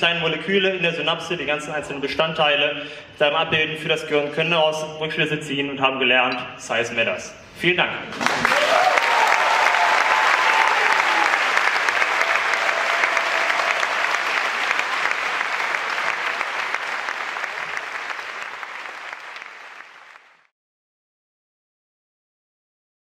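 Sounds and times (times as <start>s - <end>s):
audience applauding: 8.1s - 20.5s.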